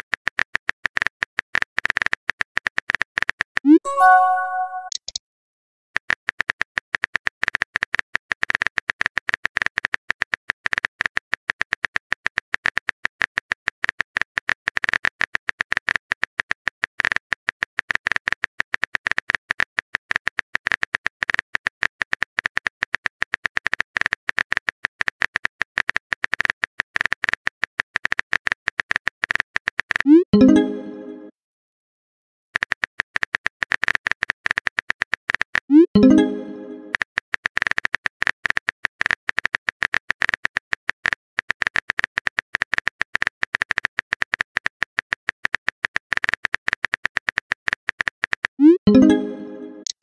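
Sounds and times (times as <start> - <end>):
message arrival chime: 3.7 - 5.0, 30.4 - 31.3, 36.0 - 37.0, 48.6 - 49.9
rapid keyboard typing clicks: 32.6 - 49.9.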